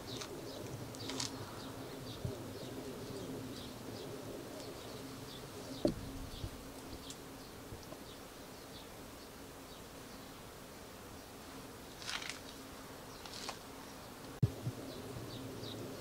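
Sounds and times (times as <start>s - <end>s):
insect buzzing: 0.0s - 16.0s
small birds chirping: 0.0s - 16.0s
soft low thump: 5.8s - 6.5s.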